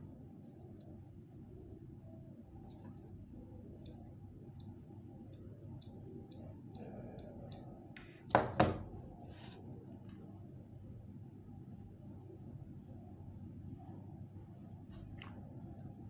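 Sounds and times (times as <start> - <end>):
glue gun knocking on table: 8.4 - 8.9.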